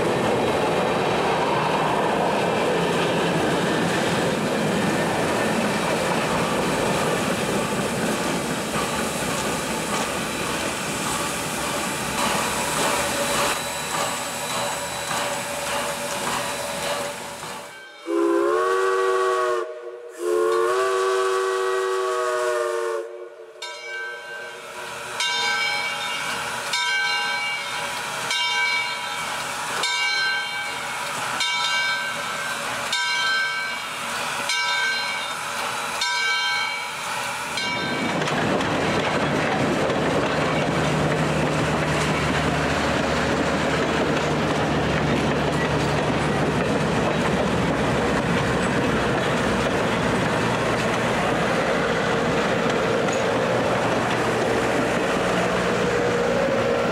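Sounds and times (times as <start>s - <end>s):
model train rumbling and clattering: 0.0s - 17.8s, 25.2s - 56.9s
model train whistle: 18.0s - 23.7s.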